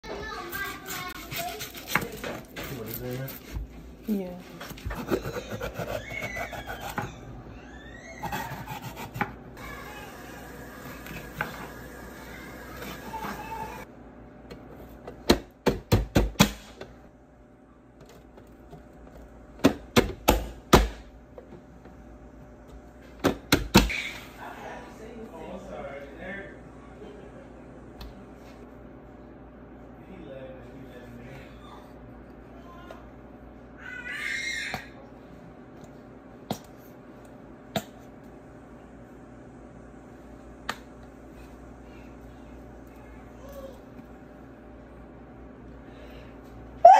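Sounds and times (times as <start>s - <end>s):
steady low hum: 34.8s - 46.9s.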